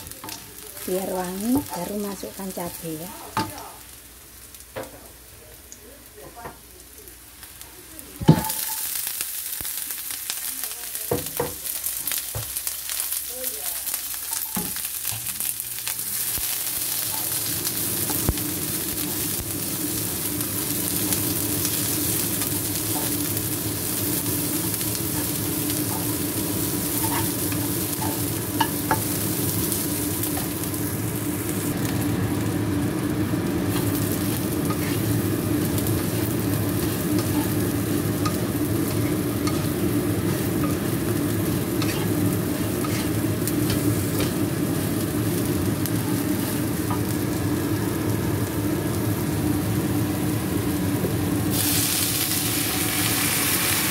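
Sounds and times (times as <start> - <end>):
food sizzling in oil: 0.0 - 53.9
spatula tapping and scraping pan: 41.8 - 42.1.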